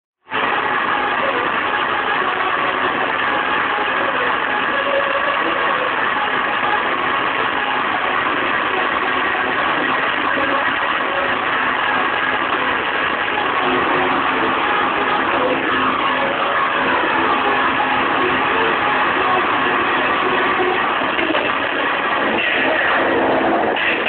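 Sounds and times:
distorted hardcore techno music: 0.2s - 24.0s.

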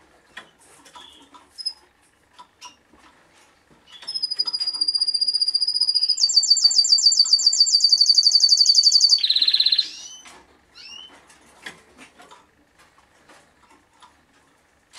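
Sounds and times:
canary singing trills: 3.9s - 11.1s.

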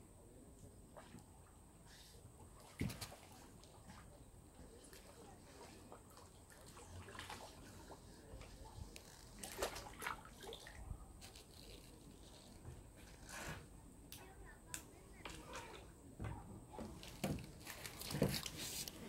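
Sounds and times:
pond water lapping: 0.9s - 12.6s
sharp splashes: 9.4s - 10.8s.

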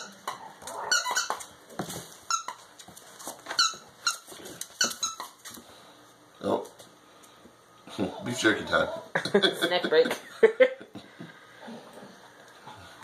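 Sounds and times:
squeaky dog toy squeaking: 0.0s - 1.4s, 2.3s - 2.6s, 3.5s - 5.4s.

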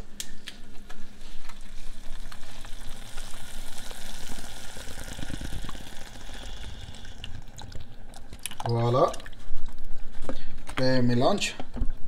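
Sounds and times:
sauce sizzling in a saucepan: 1.2s - 8.1s
cream pouring from a carton: 1.5s - 7.8s.

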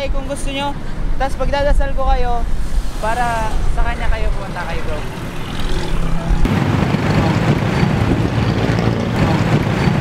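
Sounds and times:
vehicle rumbling past: 2.4s - 10.0s.

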